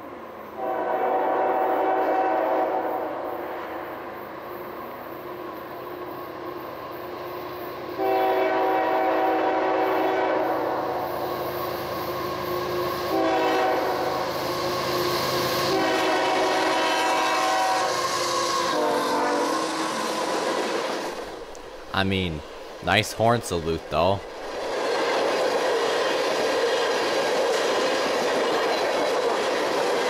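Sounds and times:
locomotive air horn blasts: 0.6 - 2.8, 8.0 - 10.5, 13.1 - 13.9, 15.7 - 17.9, 18.5 - 20.4.

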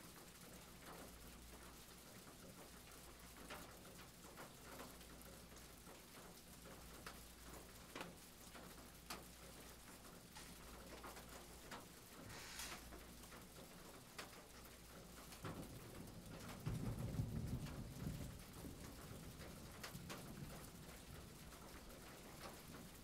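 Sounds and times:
brief hiss: 12.2 - 12.9.

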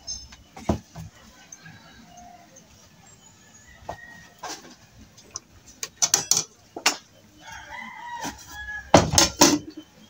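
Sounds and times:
rooster crowing: 1.1 - 2.6, 3.4 - 4.7, 7.4 - 9.3
metal pot clanking: 6.0 - 6.5.

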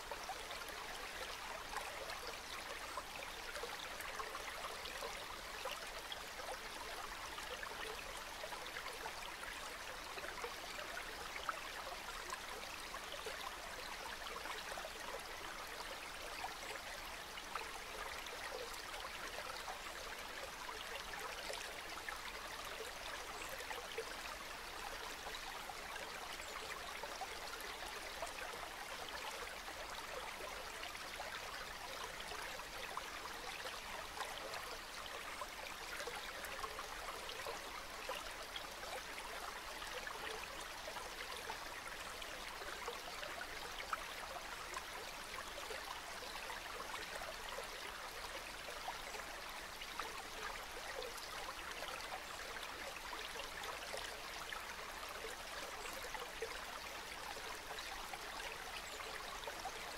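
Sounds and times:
river water flowing: 0.0 - 59.9.

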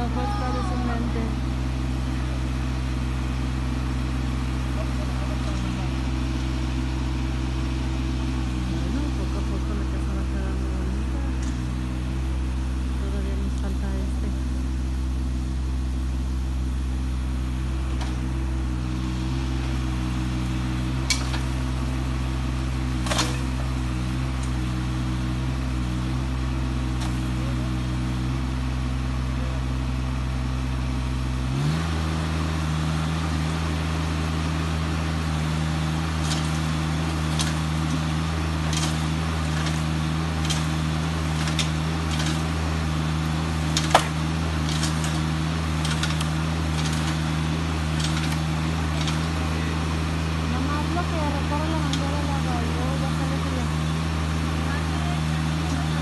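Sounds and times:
tractor engine running: 0.0 - 56.0
sharp cracks of brush: 23.0 - 23.5, 36.0 - 42.6, 43.6 - 49.4.

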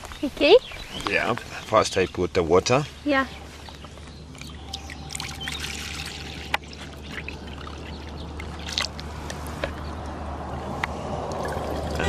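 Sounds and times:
water pouring into plastic bowl: 4.4 - 9.1, 11.3 - 12.0.

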